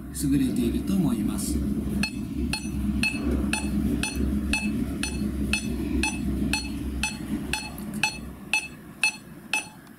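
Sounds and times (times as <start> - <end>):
metronome clicks: 5.0 - 9.9.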